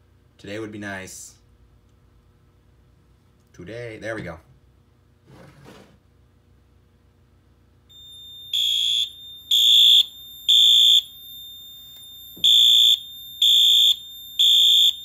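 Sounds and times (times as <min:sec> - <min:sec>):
fire alarm horn blasts: 0:07.9 - 0:15.0.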